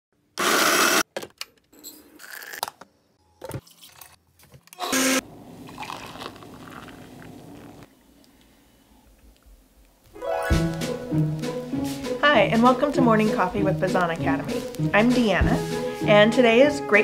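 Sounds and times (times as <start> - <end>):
blender running: 0.4 - 1.0, 4.8 - 6.4
electric coffee grinder buzzing: 0.4 - 1.0, 4.8 - 6.4
coffee pouring into a mug: 5.6 - 7.8.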